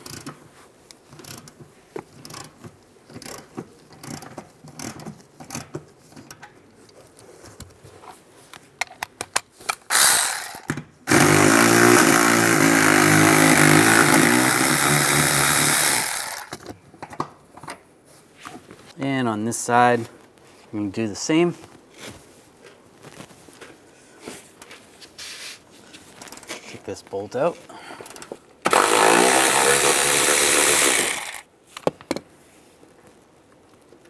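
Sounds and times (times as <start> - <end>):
hand ratchet clicks: 0.0 - 0.4, 1.0 - 1.6, 2.2 - 6.4, 8.8 - 16.7, 28.1 - 31.4
cordless electric ratchet spinning: 9.9 - 16.6, 28.7 - 31.5.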